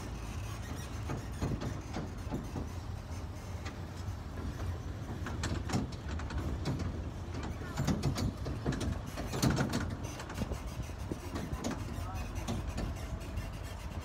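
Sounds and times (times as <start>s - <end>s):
road train rumbling: 0.0s - 14.0s
rattling and knocking of body: 4.4s - 13.0s.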